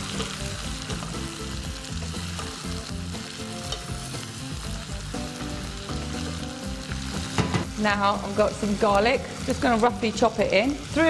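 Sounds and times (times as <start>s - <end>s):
vegetables sizzling in a pot: 0.0s - 11.0s
wooden spoon knocking a pan: 7.2s - 7.8s.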